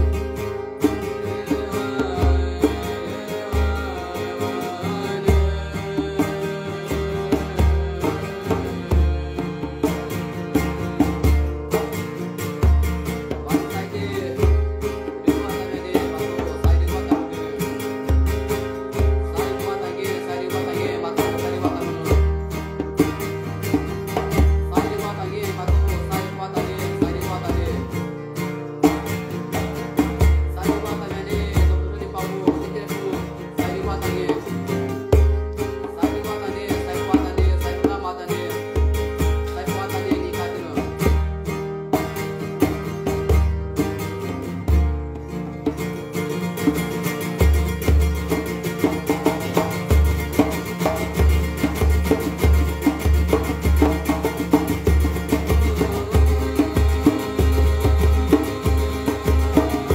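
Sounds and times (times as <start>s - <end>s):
chant with plucked strings: 0.0s - 59.9s.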